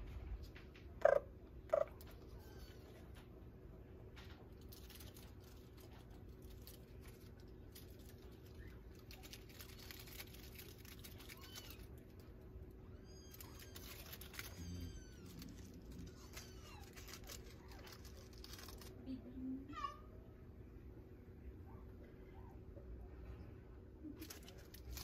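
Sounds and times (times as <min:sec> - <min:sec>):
kittens mewing: 0:10.7 - 0:12.2, 0:12.8 - 0:18.9.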